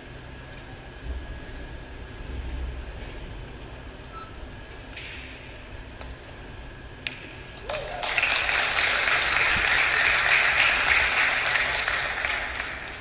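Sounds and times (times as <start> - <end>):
audience applause: 7.6 - 13.0.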